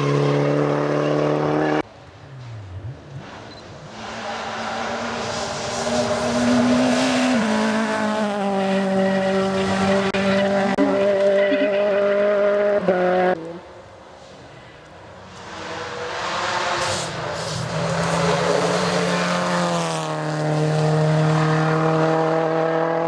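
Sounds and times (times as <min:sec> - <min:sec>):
rally car engine at high revs: 0:00.0 - 0:01.8, 0:02.8 - 0:13.6, 0:15.3 - 0:23.0.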